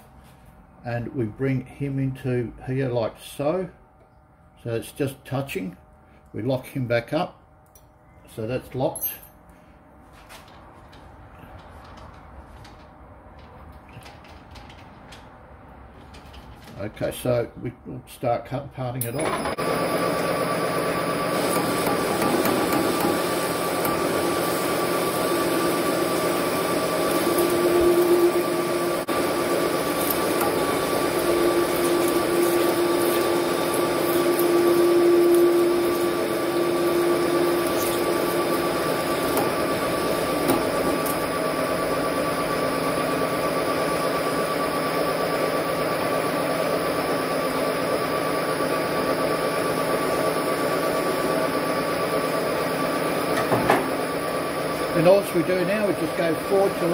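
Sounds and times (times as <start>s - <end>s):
parting tool cutting tone: 19.0s - 42.2s
metal lathe humming: 19.1s - 56.9s.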